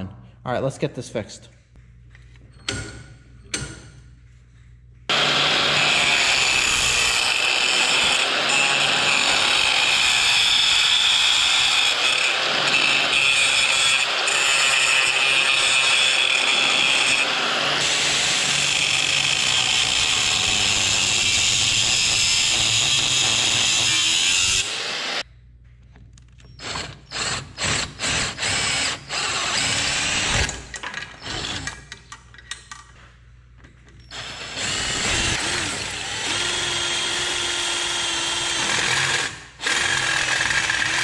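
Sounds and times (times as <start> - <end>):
angle grinder cutting metal: 5.1 - 25.2, 26.8 - 30.6, 34.1 - 41.0.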